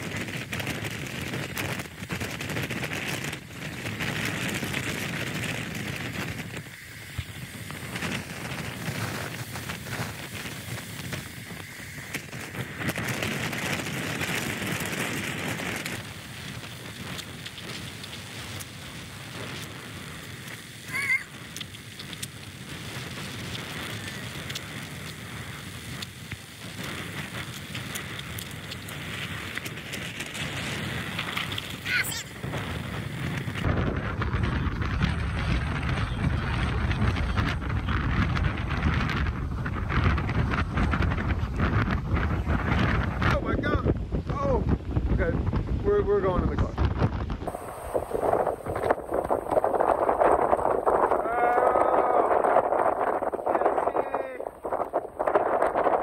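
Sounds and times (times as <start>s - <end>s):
small crackling ticks: 0.0s - 33.7s
wind buffeting microphone: 0.0s - 56.0s
water rushing: 47.5s - 56.0s.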